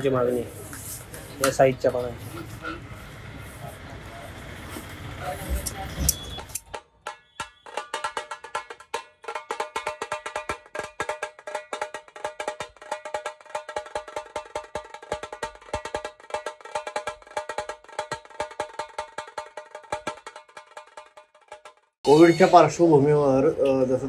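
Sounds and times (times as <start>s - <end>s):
rapid high-pitched drum strokes: 5.5s - 22.9s.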